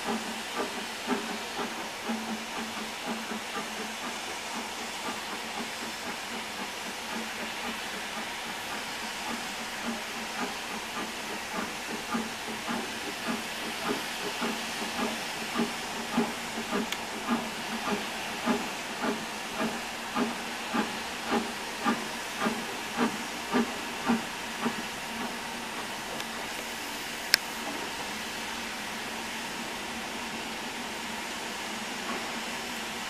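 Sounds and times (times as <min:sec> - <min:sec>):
steam hissing: 0:00.0 - 0:33.0
steam locomotive exhaust chuffing: 0:00.0 - 0:33.0.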